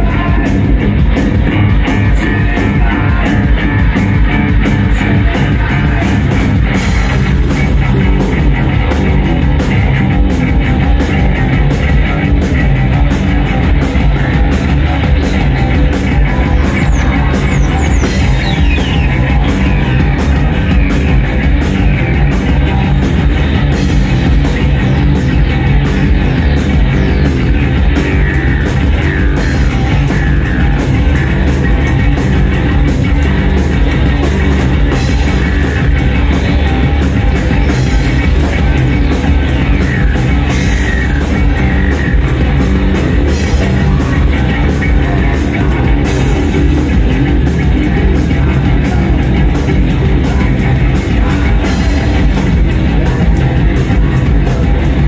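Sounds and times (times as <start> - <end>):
live rock band playing: 0.0 - 55.0
sliding high tones: 14.9 - 21.2.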